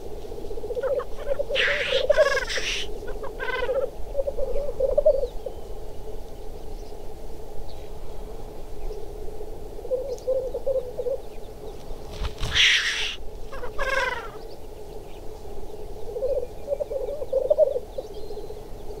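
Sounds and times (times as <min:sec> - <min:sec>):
grouse bubbling cooing song: 0:00.6 - 0:05.4, 0:12.4 - 0:14.4, 0:16.1 - 0:18.1
loud hissing bird call: 0:00.8 - 0:05.2, 0:12.3 - 0:14.4.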